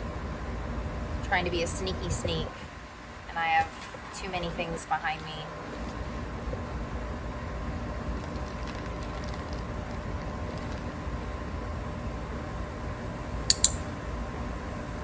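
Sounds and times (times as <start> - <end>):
clicker double click: 13.5 - 13.9.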